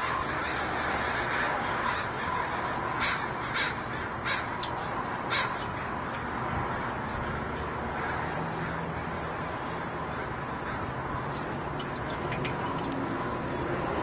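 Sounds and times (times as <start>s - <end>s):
crow cawing: 0.0s - 6.0s
steady background noise: 0.0s - 14.0s.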